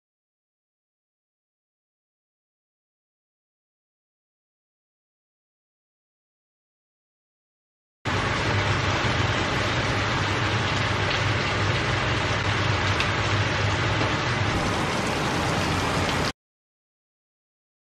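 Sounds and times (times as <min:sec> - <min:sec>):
chicken sizzling in a frying pan: 0:08.1 - 0:16.3
low hum: 0:13.7 - 0:16.3.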